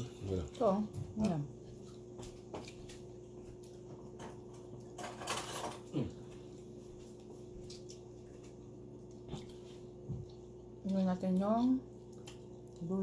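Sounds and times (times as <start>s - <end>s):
faint steady hum: 0.0s - 13.0s
person chewing: 1.6s - 3.9s, 5.8s - 10.9s, 11.9s - 12.9s.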